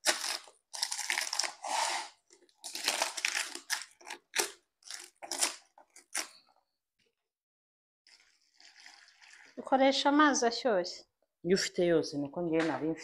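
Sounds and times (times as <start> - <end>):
banana leaves crackling and rustling: 2.6 - 6.3.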